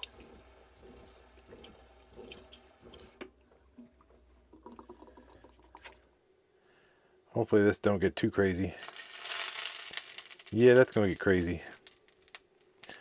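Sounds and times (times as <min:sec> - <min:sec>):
water running into steel sink: 0:00.0 - 0:03.2.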